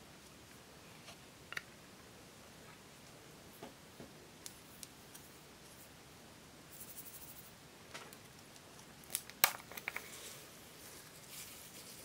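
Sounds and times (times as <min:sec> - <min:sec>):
plastic capsule clicks: 0:09.1 - 0:10.0.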